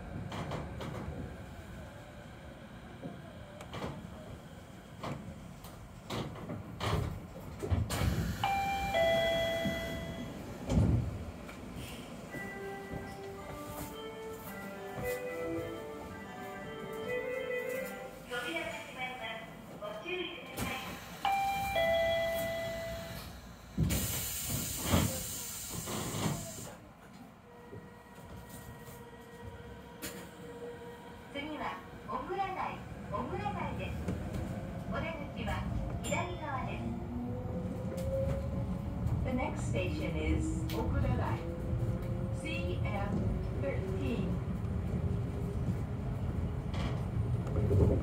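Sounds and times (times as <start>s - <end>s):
compressed air hiss: 23.9s - 26.8s.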